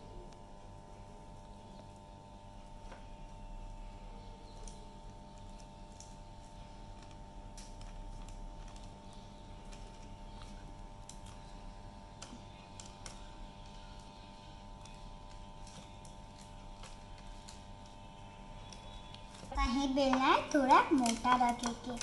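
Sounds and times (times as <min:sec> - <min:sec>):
steady hum: 0:00.0 - 0:22.0
plastic bag crinkling: 0:04.4 - 0:22.0.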